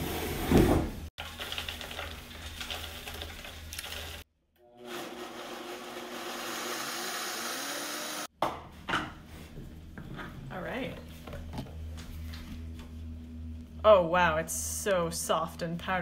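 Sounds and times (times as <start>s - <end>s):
meal pattering into blender jar: 1.2s - 4.2s
blender grinding: 3.6s - 8.3s.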